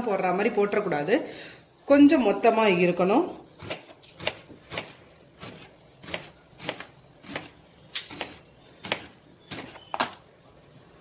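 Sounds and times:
knife slicing plantain: 0:03.6 - 0:10.2.

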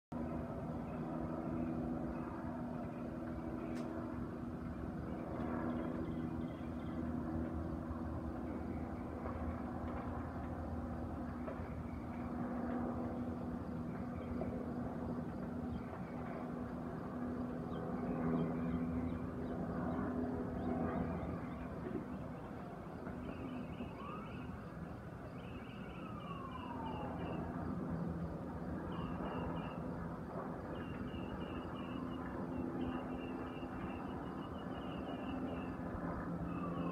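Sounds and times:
distant emergency siren wailing: 0:00.2 - 0:36.9
fire rushing and humming: 0:01.7 - 0:29.0.

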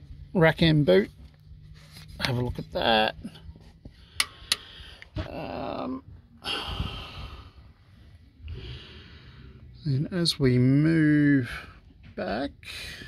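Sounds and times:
man breathing heavily: 0:03.4 - 0:05.3, 0:06.3 - 0:09.8, 0:12.6 - 0:13.0.

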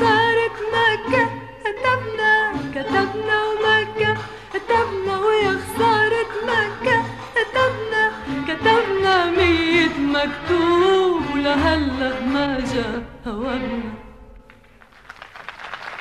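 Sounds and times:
woman singing: 0:00.0 - 0:14.4
musical accompaniment: 0:00.0 - 0:16.0
audience applause: 0:14.6 - 0:16.0.

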